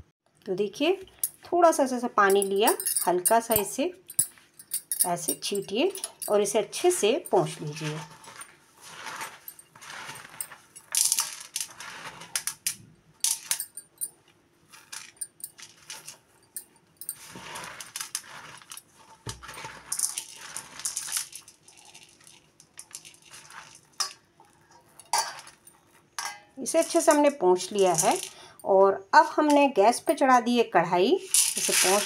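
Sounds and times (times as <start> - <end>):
pearls clicking against steel: 2.3 - 6.4
cloth rustling and scraping: 7.3 - 12.4, 17.0 - 21.1.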